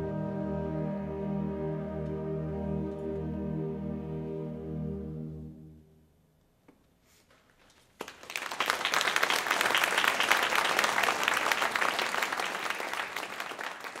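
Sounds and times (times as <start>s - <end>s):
audience applause: 8.0s - 14.0s.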